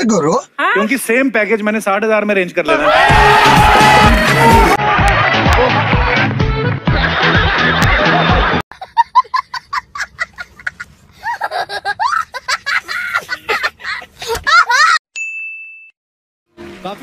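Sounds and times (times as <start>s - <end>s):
music with bass beat: 3.1s - 8.6s
child laughing: 8.7s - 15.0s.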